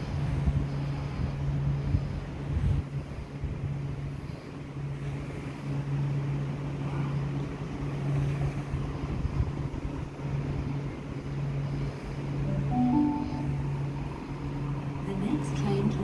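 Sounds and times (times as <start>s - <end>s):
wind gusts on microphone: 0.0s - 11.6s
standing train low drone: 0.0s - 16.0s.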